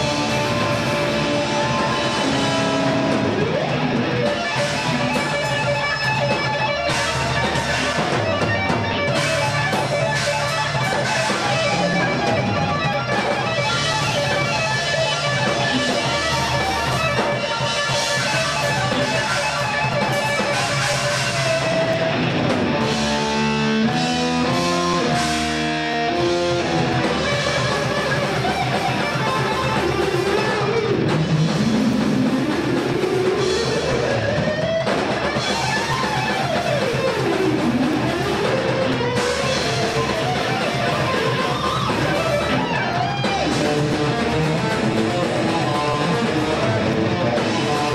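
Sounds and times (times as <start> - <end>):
guitar lead sliding in pitch: 0.0 - 47.9
thrash metal band playing live: 0.0 - 47.9.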